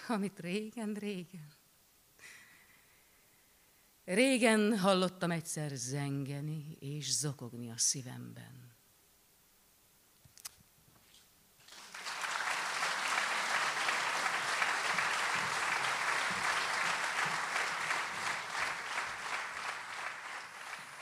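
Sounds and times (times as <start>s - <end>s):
audience applauding: 11.6s - 21.0s.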